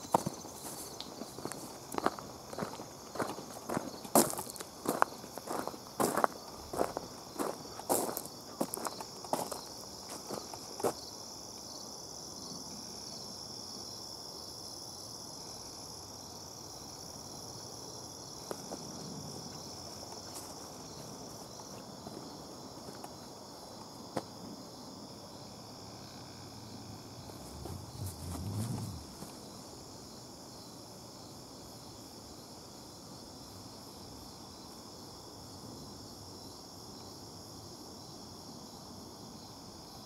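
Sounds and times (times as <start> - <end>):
insects trilling: 0.0 - 40.0
footsteps: 27.2 - 29.4.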